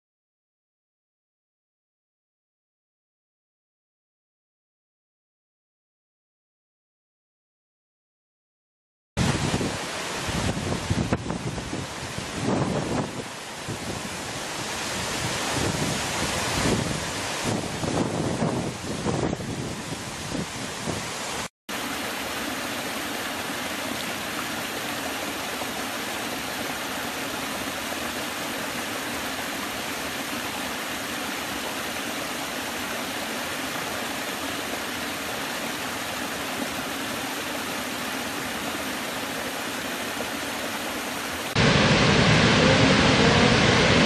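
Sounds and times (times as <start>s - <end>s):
gusty waterfall: 9.2s - 44.0s
loud waterfall rumble: 9.2s - 44.0s
stream rushing over rocks: 9.2s - 44.0s.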